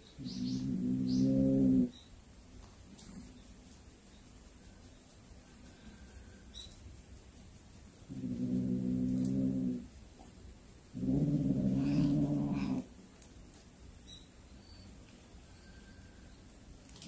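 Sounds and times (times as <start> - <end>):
cat growling low: 0.2 - 1.9, 8.1 - 9.9, 10.9 - 12.9.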